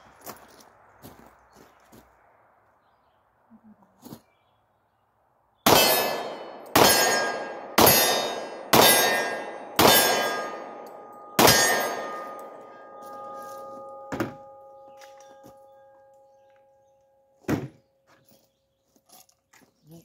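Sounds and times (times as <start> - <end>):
pistol shots: 5.7 - 13.0
metallic ringing: 5.7 - 17.5.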